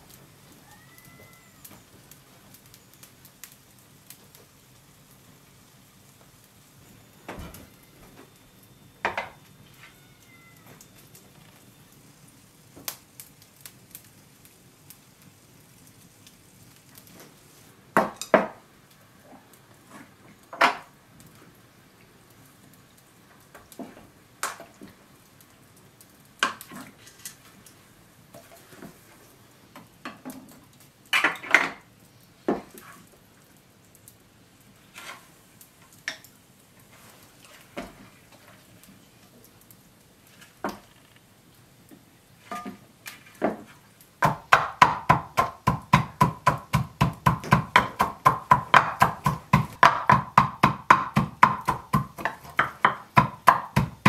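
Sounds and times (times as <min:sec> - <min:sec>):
pestle pounding in wooden mortar: 0:44.2 - 0:54.0.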